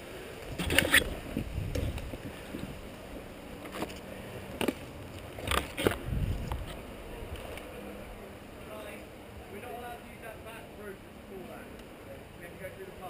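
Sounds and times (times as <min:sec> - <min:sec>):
wind rumble: 0:00.4 - 0:03.6, 0:04.8 - 0:08.3
camera handling noise: 0:00.6 - 0:02.2, 0:03.6 - 0:07.7
twigs snapping: 0:03.6 - 0:07.7.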